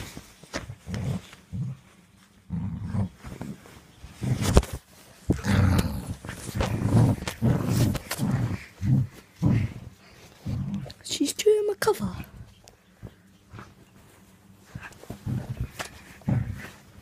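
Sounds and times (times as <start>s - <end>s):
dog growling: 2.5s - 4.6s, 5.3s - 11.0s, 14.7s - 17.0s.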